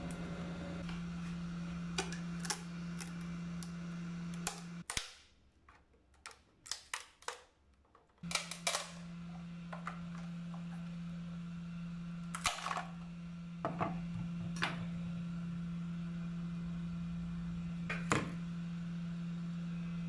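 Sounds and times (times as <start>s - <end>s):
steady low hum: 0.0s - 4.8s
plastic clicks and snaps: 4.4s - 8.9s.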